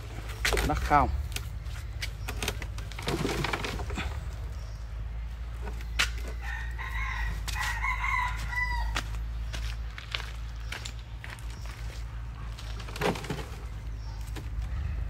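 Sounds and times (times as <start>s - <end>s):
rooster crowing: 6.3s - 9.1s.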